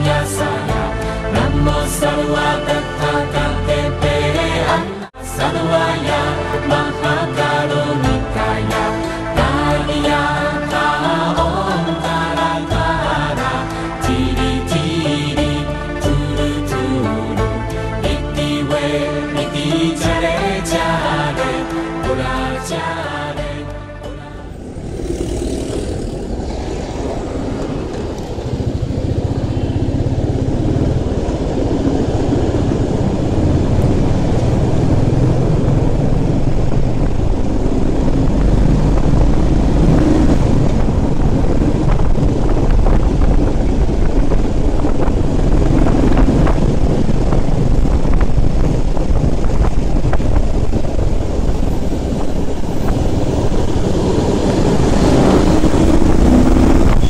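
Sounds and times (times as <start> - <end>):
wind rushing over microphone: 19.9 - 57.0
motorcycle engine running: 24.3 - 57.0.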